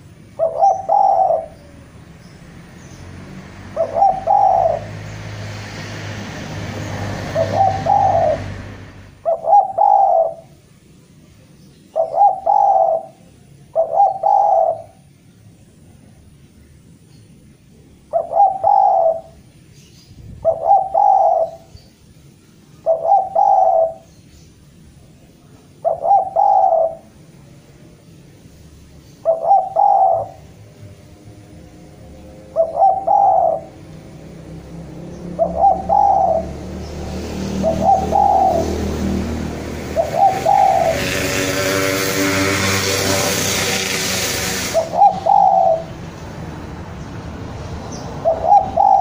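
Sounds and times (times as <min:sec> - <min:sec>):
dove cooing: 0:00.0 - 0:01.9, 0:03.7 - 0:05.2, 0:07.2 - 0:10.5, 0:11.9 - 0:15.1, 0:18.1 - 0:19.4, 0:20.4 - 0:21.7, 0:22.8 - 0:24.1, 0:25.8 - 0:27.2, 0:29.2 - 0:30.6, 0:32.4 - 0:33.9, 0:35.3 - 0:36.8, 0:37.5 - 0:46.0, 0:48.2 - 0:49.0
vehicle engine passing: 0:00.0 - 0:10.6, 0:25.8 - 0:49.0.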